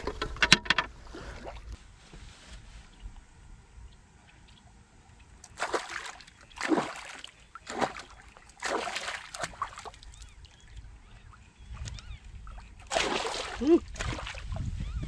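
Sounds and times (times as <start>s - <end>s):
fish splashing in water: 5.5s - 10.5s, 12.5s - 14.6s.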